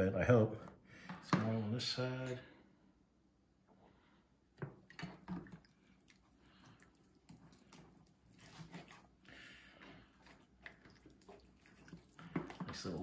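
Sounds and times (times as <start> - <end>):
wet squishing and patting: 4.6 - 13.0.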